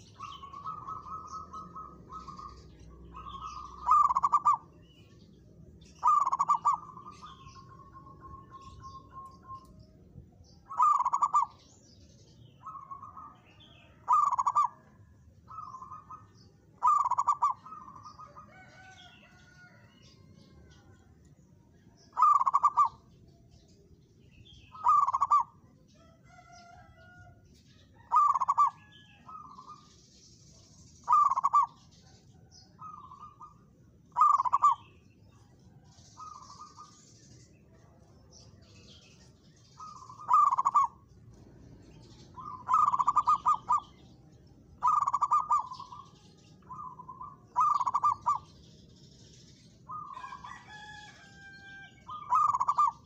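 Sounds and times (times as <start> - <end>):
dove cooing: 0.0 - 5.1, 5.9 - 9.8, 10.6 - 11.8, 12.6 - 21.0, 22.1 - 23.1, 24.6 - 27.3, 28.0 - 29.8, 31.0 - 35.0, 39.8 - 48.6, 49.9 - 53.0.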